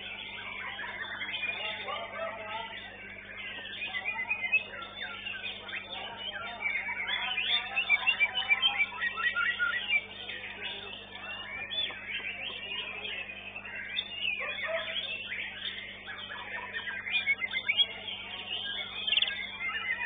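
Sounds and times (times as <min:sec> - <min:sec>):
bird singing whistles and chirps: 0:00.0 - 0:20.0.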